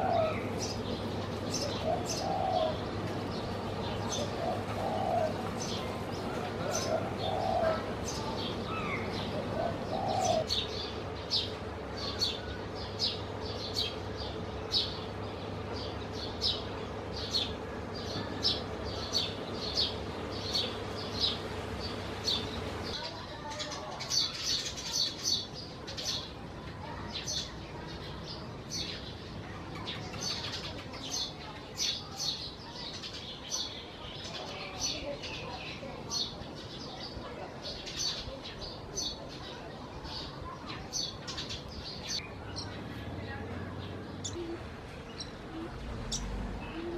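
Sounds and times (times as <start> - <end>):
dove cooing: 0.0 - 10.6, 45.3 - 46.9
sparrow chirping: 0.0 - 46.9.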